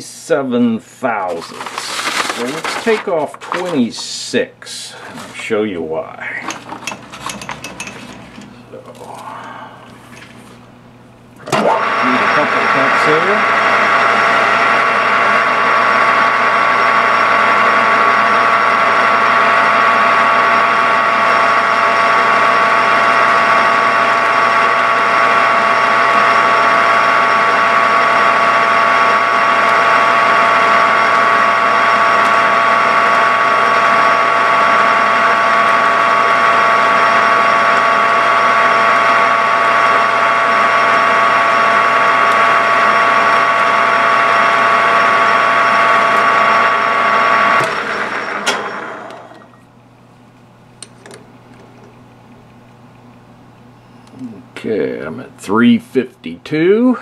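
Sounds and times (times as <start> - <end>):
turning tool cutting metal: 1.2 - 4.1, 6.4 - 8.8, 11.4 - 49.6
metal lathe gear whine: 6.4 - 10.6, 11.4 - 49.7.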